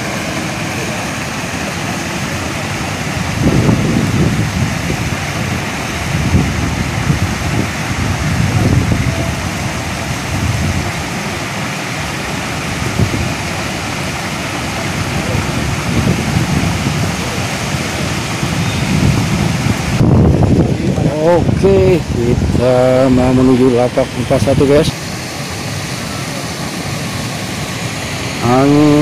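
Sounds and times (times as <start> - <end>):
wind buffeting microphone: 2.5 - 11.7, 12.3 - 26.1.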